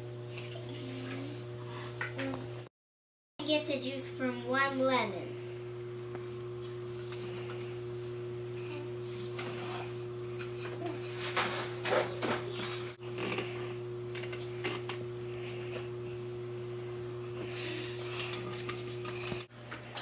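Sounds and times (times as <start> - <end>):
steady electrical hum: 3.4 - 20.0
citrus juicer scraping and crackling: 12.5 - 15.7, 17.7 - 20.0.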